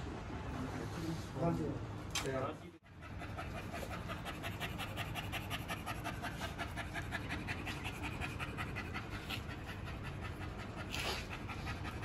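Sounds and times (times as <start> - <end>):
dog panting rapidly: 2.8 - 12.0.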